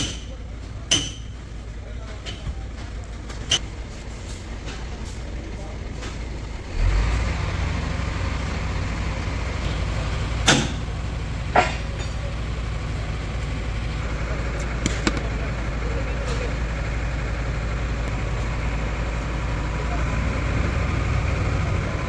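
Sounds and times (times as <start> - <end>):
sharp knocks: 0.0 - 0.3, 14.8 - 15.3
low mechanical rumble: 0.0 - 22.0.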